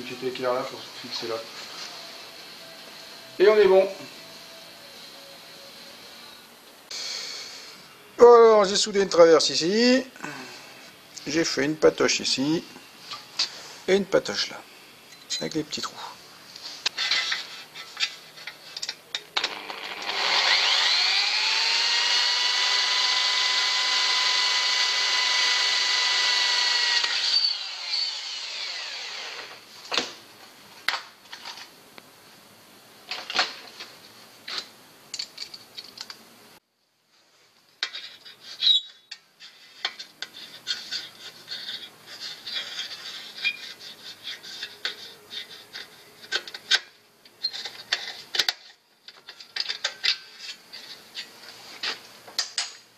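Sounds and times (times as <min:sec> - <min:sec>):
electric drill drilling metal: 0:19.4 - 0:29.6.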